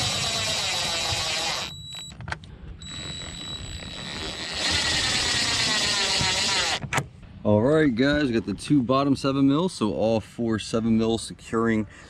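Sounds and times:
power driver motor whining: 0.0 - 2.2, 2.8 - 7.0.

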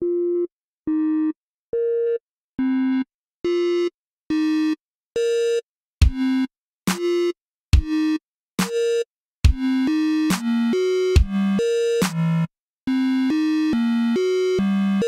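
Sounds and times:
kick drum: 9.5 - 9.7.

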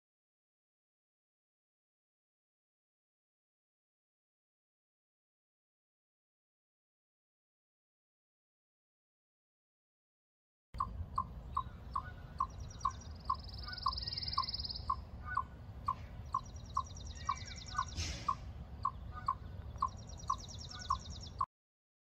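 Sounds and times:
chipmunk chipping: 10.8 - 21.5.

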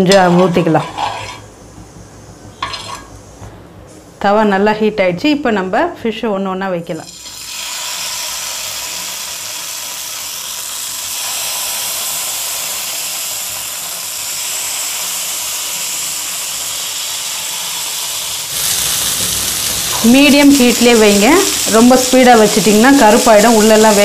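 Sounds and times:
fish sizzling on a hot iron pan: 7.2 - 24.0.

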